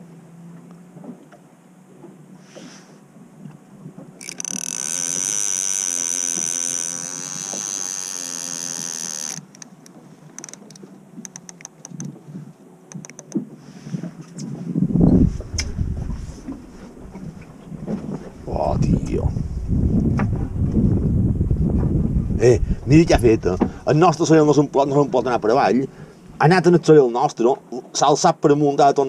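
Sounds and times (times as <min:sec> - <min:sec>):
fishing reel buzzing: 0:04.2 - 0:09.8
fishing reel clicks: 0:04.2 - 0:09.8, 0:10.4 - 0:12.1, 0:12.9 - 0:13.4
heavy low bumps: 0:14.6 - 0:25.4.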